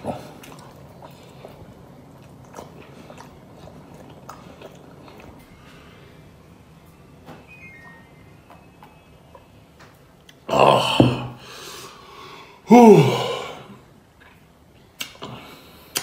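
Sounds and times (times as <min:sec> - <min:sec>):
man chewing: 0:00.0 - 0:06.8, 0:07.8 - 0:12.1, 0:13.8 - 0:16.0
man burping loudly: 0:10.4 - 0:11.4, 0:12.7 - 0:13.7.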